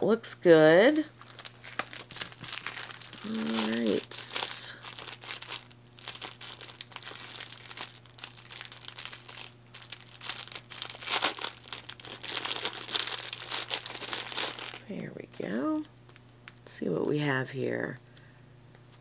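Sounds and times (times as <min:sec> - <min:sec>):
plastic bag crinkling: 0:01.1 - 0:15.4.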